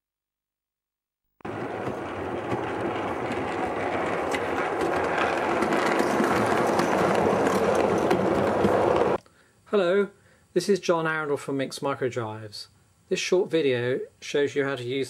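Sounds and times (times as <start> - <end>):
model train running on track: 1.5 - 9.2.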